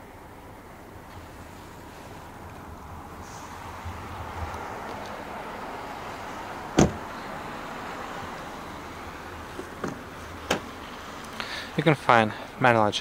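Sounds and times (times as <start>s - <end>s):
car door shutting: 6.7s - 7.2s, 9.5s - 10.8s.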